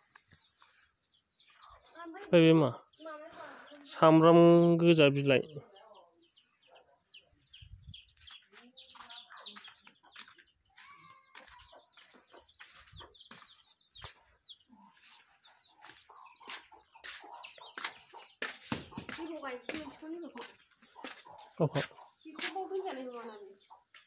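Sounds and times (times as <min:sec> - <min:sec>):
high bird chirps: 0:06.3 - 0:19.9.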